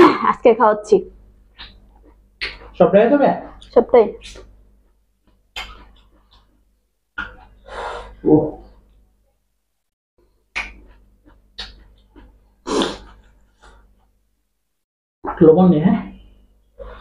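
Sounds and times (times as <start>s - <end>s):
man chewing tomato: 10.3s - 14.2s.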